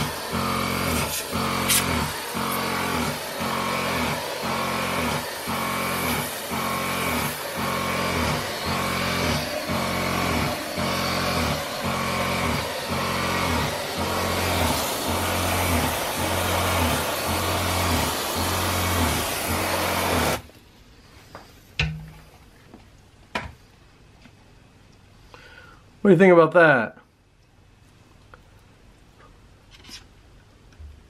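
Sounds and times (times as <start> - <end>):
mist spraying hiss: 0.0 - 8.5
water pump humming: 0.0 - 20.6.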